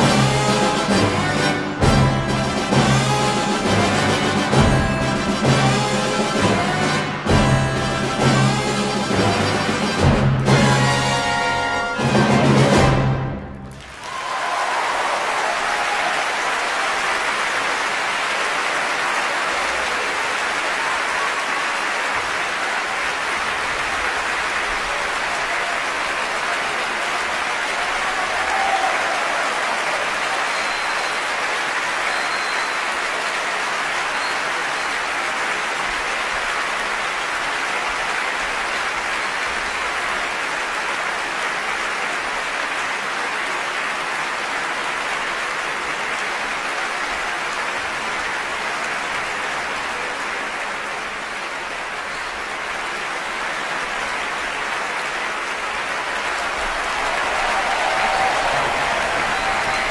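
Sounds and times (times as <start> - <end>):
audience applauding: 0.0 - 59.9.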